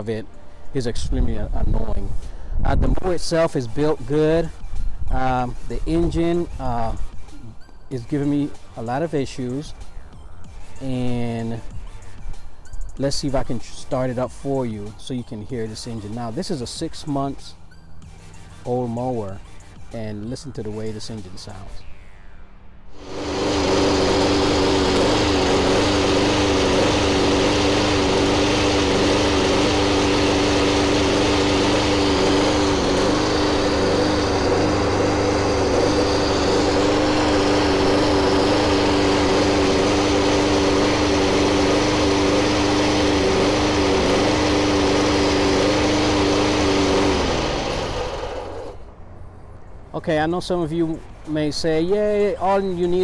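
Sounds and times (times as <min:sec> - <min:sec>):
lawn mower engine running: 0:22.9 - 0:49.6.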